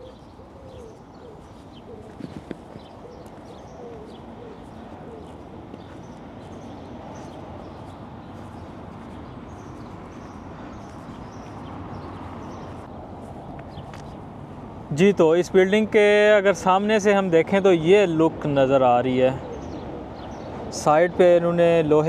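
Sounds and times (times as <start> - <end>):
pigeons cooing: 0.0 - 12.9, 19.2 - 20.8
small birds chirping: 0.0 - 14.3, 18.4 - 21.4.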